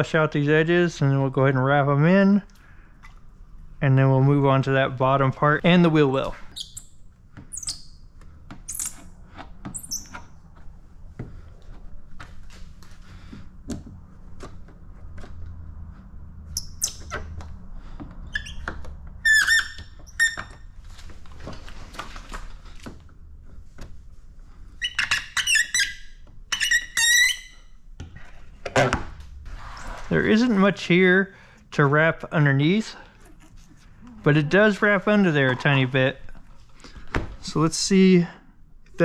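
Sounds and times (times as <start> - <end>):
squeegee squeaking on wet film: 7.5 - 8.0, 8.7 - 9.1, 9.7 - 10.3, 24.8 - 27.6.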